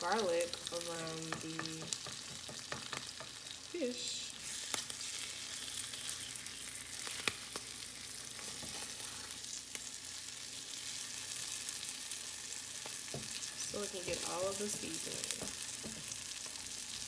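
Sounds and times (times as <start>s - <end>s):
fish sizzling in oil: 0.0s - 17.0s
spatula tapping a pan: 1.2s - 3.4s, 14.6s - 16.1s
spatula scraping a pan: 8.3s - 9.5s.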